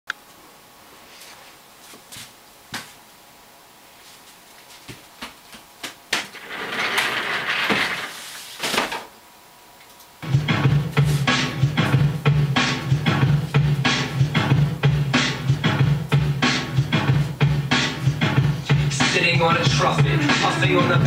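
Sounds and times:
footsteps: 1.0s - 3.0s, 3.9s - 6.5s
chair rolling across floor: 6.3s - 9.0s
rap music with heavy bass: 10.2s - 21.0s.

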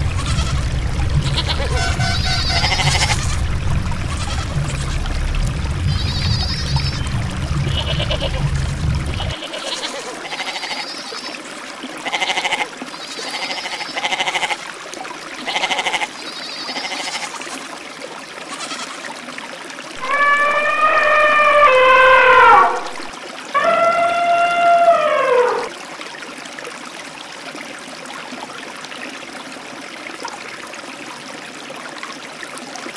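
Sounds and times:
low rumble: 0.0s - 9.4s
goats bleating: 0.2s - 0.6s, 1.2s - 3.4s, 4.1s - 5.0s, 9.2s - 10.8s, 12.1s - 12.7s, 15.5s - 16.1s, 18.5s - 19.0s.

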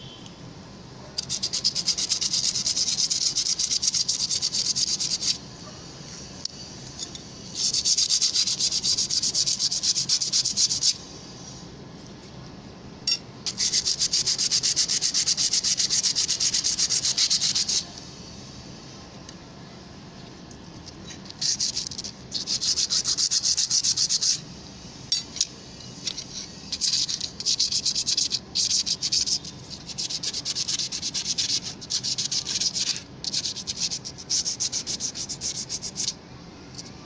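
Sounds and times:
spoon scraping on sandpaper: 1.2s - 5.4s, 6.9s - 11.1s, 13.4s - 17.9s, 20.8s - 24.4s, 25.4s - 36.2s.

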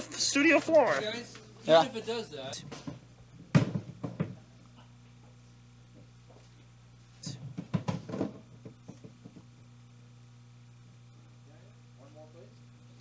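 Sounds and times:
low electrical hum: 0.0s - 13.0s
drum knocking and thudding on floor: 2.7s - 4.4s, 7.5s - 9.5s.

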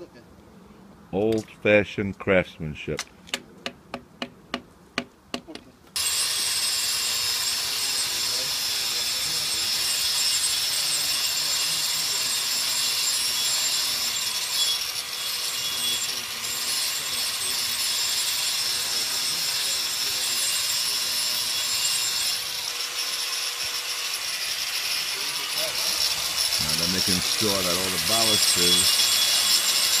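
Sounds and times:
power grinder cutting concrete: 6.0s - 30.0s.

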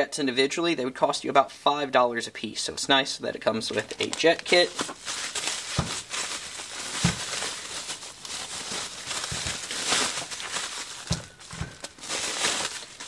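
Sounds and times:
bubble wrap crinkling: 3.6s - 13.0s.

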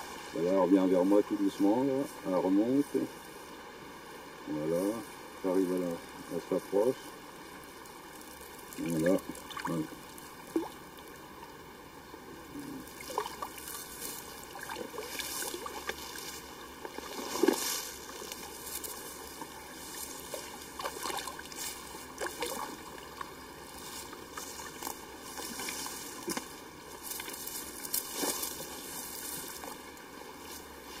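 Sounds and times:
fish splashing at water surface: 12.9s - 16.0s, 19.4s - 23.3s.

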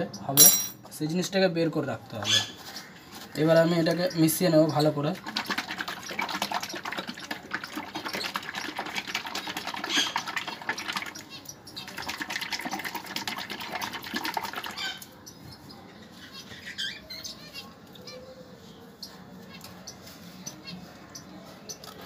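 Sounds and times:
liquid sloshing in plastic bottle: 5.1s - 11.2s, 11.8s - 14.8s.

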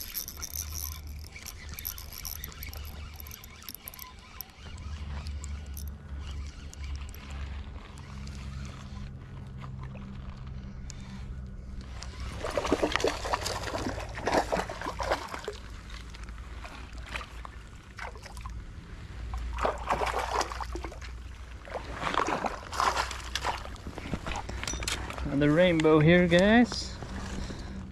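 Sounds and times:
fish thrashing and splashing: 0.0s - 10.6s, 12.1s - 18.5s, 19.4s - 24.6s.

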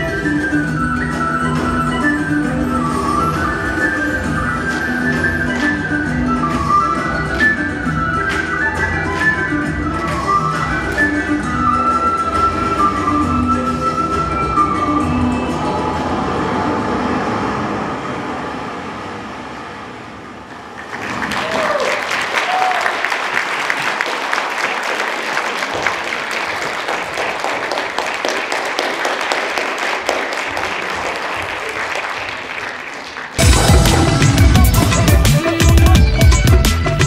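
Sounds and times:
stage dance music: 0.0s - 16.6s, 21.0s - 37.0s
audience applauding: 20.7s - 36.6s
calls from the crowd: 20.9s - 35.1s.

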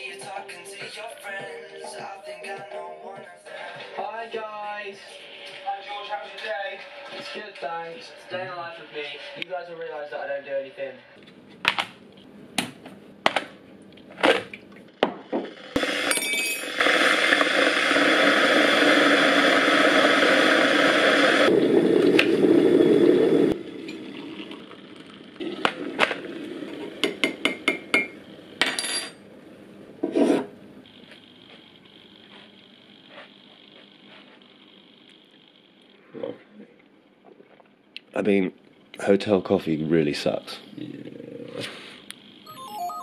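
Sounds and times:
kettle heating water rushing: 15.8s - 27.8s.

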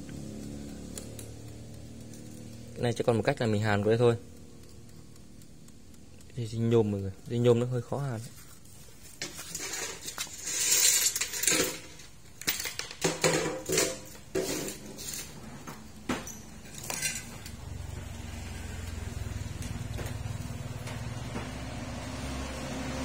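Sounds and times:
steady low hum: 0.0s - 9.2s
metal tools clinking: 9.3s - 15.5s, 16.1s - 17.6s.

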